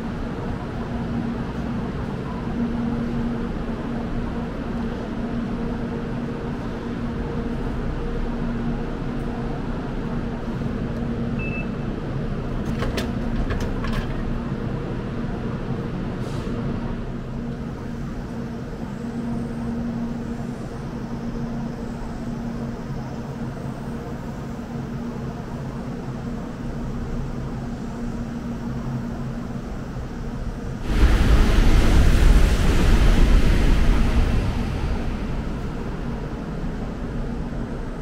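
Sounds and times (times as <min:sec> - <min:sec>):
outdoor background noise: 0:00.0 - 0:38.0
low machine hum: 0:29.6 - 0:38.0.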